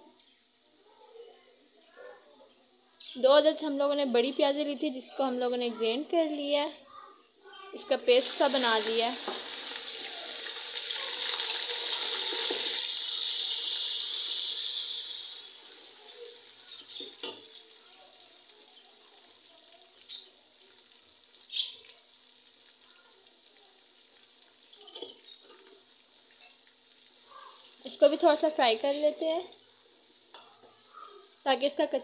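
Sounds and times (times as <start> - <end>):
onion paste sizzling in hot oil: 0.1 - 2.0, 2.6 - 32.0.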